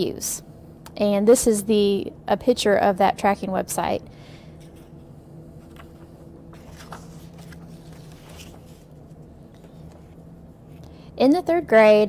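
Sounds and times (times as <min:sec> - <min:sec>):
steady low hum: 0:00.0 - 0:12.0
paper rustling: 0:05.6 - 0:10.2.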